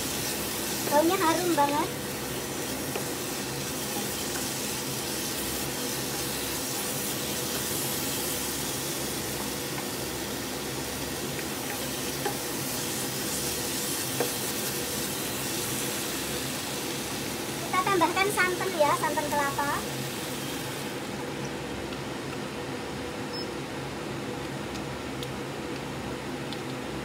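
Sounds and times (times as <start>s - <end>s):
paste sizzling in oil: 0.0s - 21.4s.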